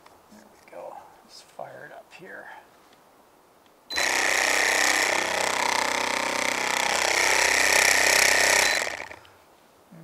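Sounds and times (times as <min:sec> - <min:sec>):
water pump buzzing: 0:03.9 - 0:09.2.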